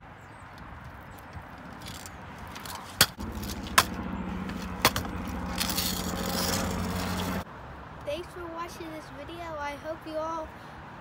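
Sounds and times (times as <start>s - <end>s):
scooter wheels rolling on pavement: 0.2s - 10.2s
scooter deck clacking on pavement: 0.8s - 7.4s.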